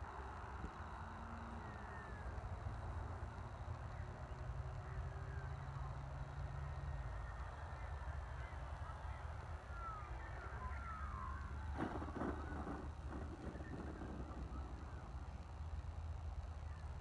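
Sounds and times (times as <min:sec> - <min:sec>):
low wind rumble: 0:00.0 - 0:17.0
clatter of knocks: 0:11.7 - 0:14.9.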